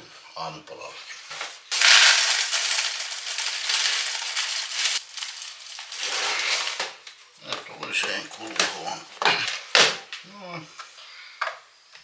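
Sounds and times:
cereal pouring into plastic container: 1.7 - 7.0.

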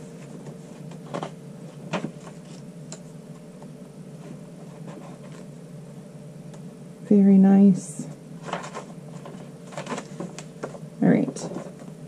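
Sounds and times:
faint room hum: 0.0 - 12.0
paper pages turning: 8.4 - 10.8.

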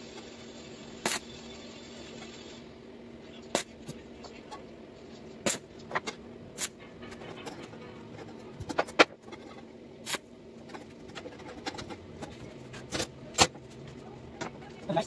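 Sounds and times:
welding arc crackling: 0.0 - 2.7, 10.0 - 10.3
faint steady hum: 0.0 - 15.0.

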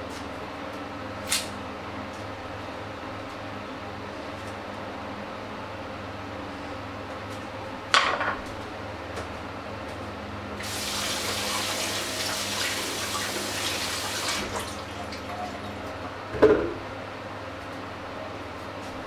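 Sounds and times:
low background hum: 0.0 - 19.0
water running into sink: 10.6 - 15.9.

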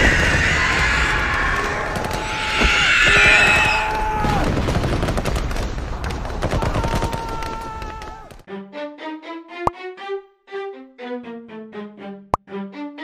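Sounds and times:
rapid gunfire: 4.2 - 7.6.

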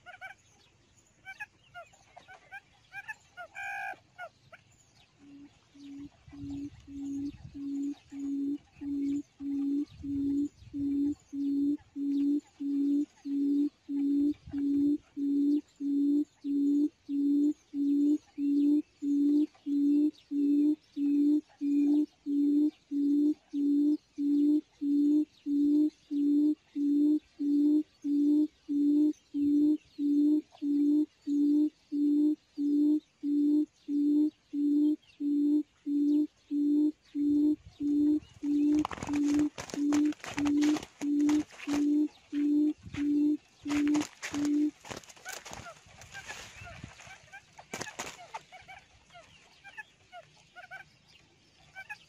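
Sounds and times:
recorded quail call hooting: 0.0 - 0.4, 1.2 - 50.9, 51.7 - 52.0.

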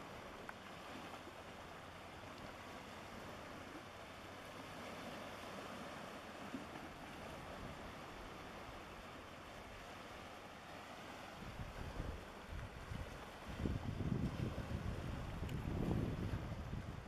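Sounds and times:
water: 0.0 - 17.0
wind: 0.0 - 17.0
wind rumble on microphone: 11.0 - 17.0.

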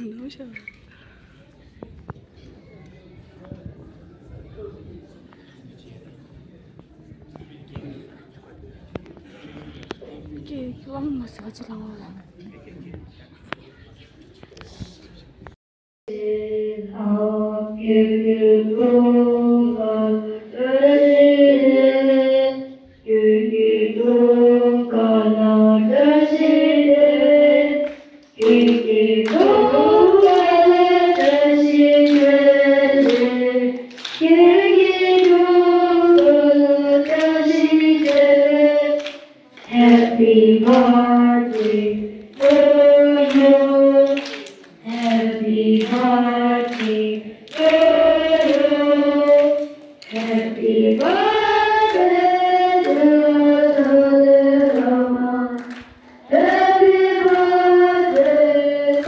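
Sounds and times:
voices singing a melody: 16.1 - 59.0.

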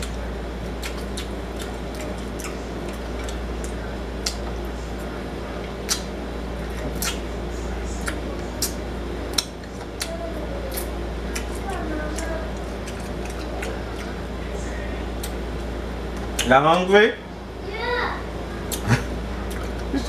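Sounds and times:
steady low hum: 0.0 - 20.0
fingers being licked: 0.8 - 4.5, 5.8 - 6.1, 7.0 - 7.3
wet mouth smacks and clicks: 5.9 - 6.1, 7.0 - 7.2, 9.4 - 10.1.

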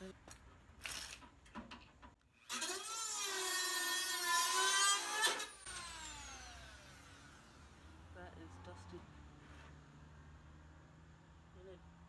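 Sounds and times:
rotary tool cutting metal: 2.4 - 7.5.

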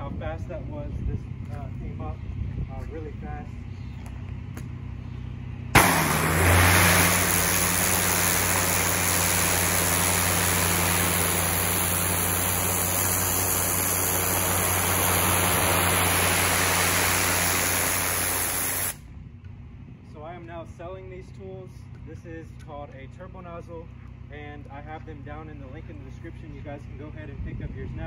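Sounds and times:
steady low hum: 0.5 - 20.2
pressure washer spraying: 5.8 - 19.0.

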